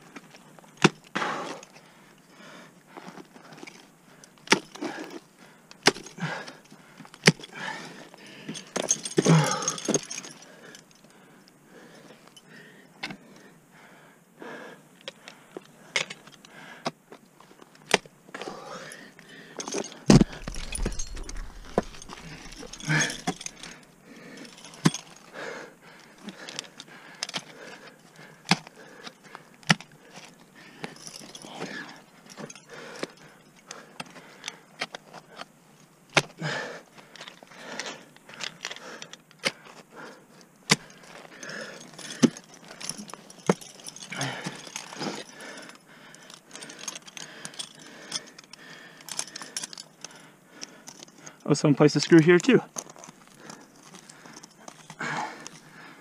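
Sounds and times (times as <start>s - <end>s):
climbing gear clinking: 3.0s - 12.6s, 17.6s - 35.5s, 36.4s - 56.0s
low microphone rumble: 20.2s - 23.4s.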